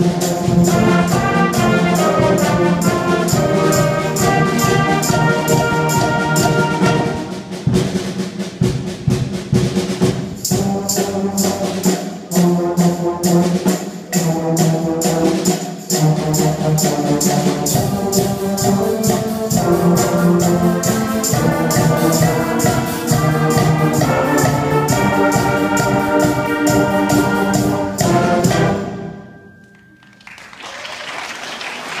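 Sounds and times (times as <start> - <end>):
audience applause: 30.0 - 32.0.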